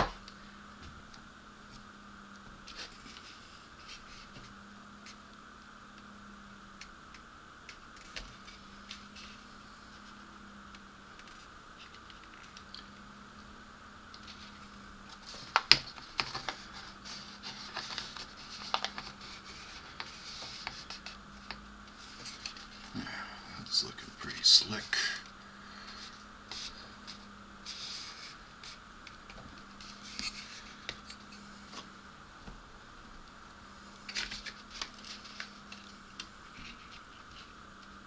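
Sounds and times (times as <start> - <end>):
faint steady hum: 0.0 - 38.0
faint scratches: 25.8 - 28.8, 29.6 - 31.9.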